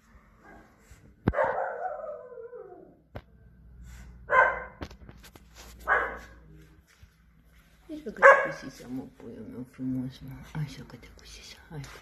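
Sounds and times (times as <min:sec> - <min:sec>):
dog barking: 0:00.4 - 0:02.7, 0:04.3 - 0:04.8, 0:05.8 - 0:06.4, 0:08.2 - 0:08.8.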